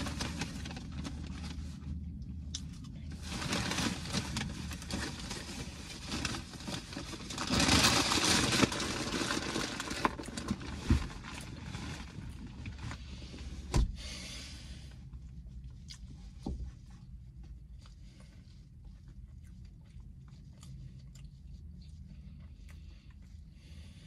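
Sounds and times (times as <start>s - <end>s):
paper bag rustling and crinkling: 0.0s - 2.0s, 3.1s - 13.2s.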